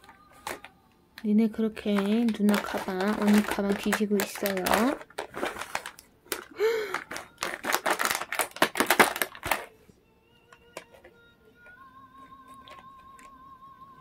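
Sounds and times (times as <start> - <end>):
cat rummaging in cloth bag: 0.0 - 0.8, 1.8 - 9.8, 10.5 - 13.4
faint background music: 0.0 - 14.0
plastic pouch crinkling: 1.8 - 9.8.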